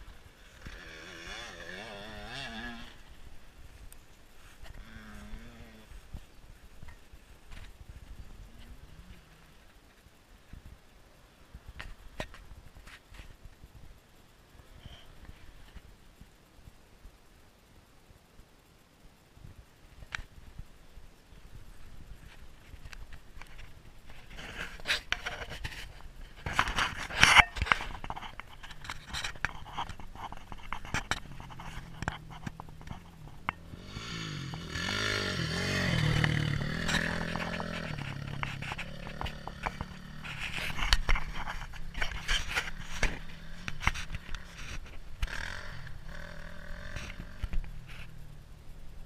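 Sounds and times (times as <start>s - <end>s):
dirt bike engine passing: 0.1s - 3.2s, 4.7s - 5.9s, 31.2s - 42.0s, 45.2s - 48.4s.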